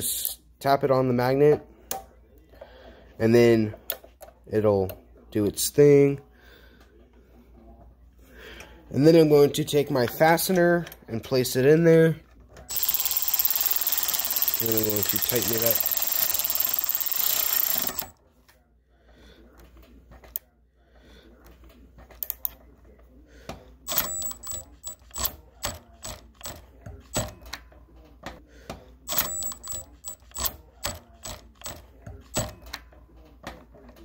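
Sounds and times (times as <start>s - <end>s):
hand ratchet clicking: 12.7s - 18.1s.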